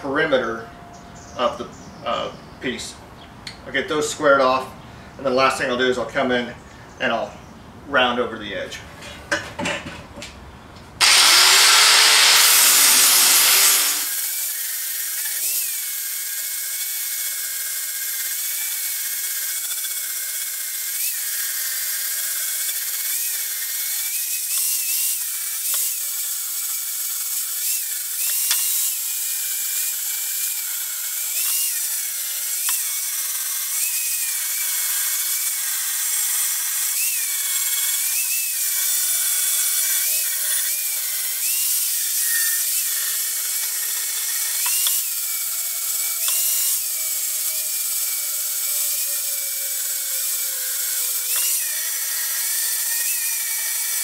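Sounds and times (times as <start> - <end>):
electric grinder grinding metal: 11.0 - 54.0.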